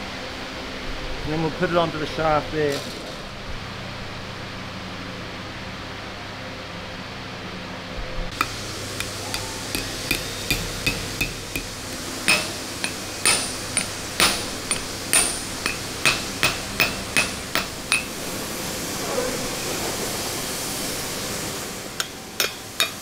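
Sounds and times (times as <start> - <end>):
hammer striking metal: 8.3 - 18.2, 22.0 - 23.0.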